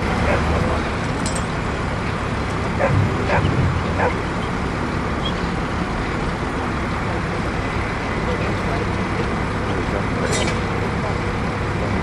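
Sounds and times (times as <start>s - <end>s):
heavy machinery engine rumble: 0.0s - 12.0s
dog barking: 2.8s - 4.2s.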